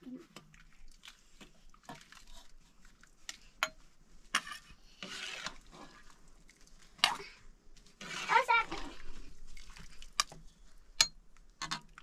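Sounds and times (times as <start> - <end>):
metal ladle scraping a pot: 4.3 - 6.2, 7.9 - 9.2.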